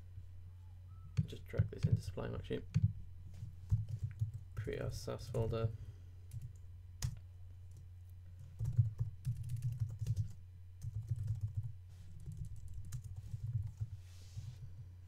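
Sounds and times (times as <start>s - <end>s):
steady low hum: 0.0s - 15.0s
computer keyboard typing: 3.7s - 4.4s, 6.3s - 7.8s, 8.5s - 13.9s.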